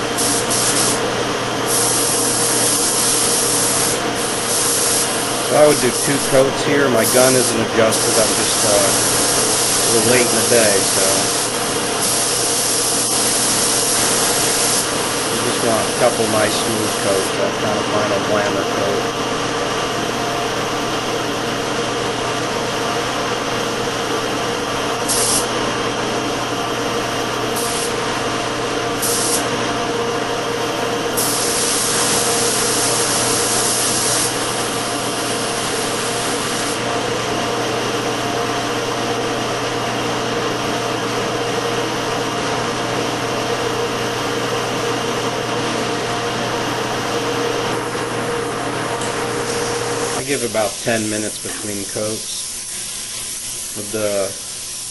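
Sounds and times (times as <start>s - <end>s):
spray gun hissing: 0.0s - 1.1s, 1.7s - 17.4s, 25.0s - 25.5s, 27.6s - 28.1s, 29.0s - 29.5s, 31.2s - 36.9s, 49.3s - 54.9s.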